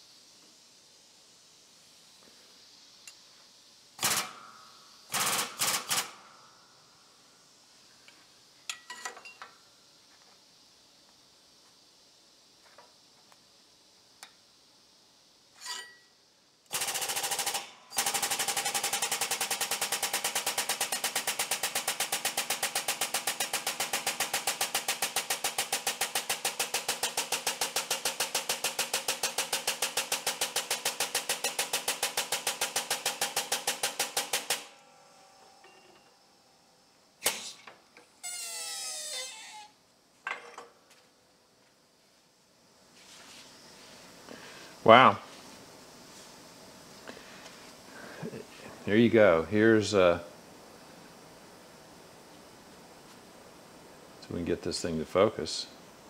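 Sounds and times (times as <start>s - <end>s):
brief hiss: 37.2s - 39.8s.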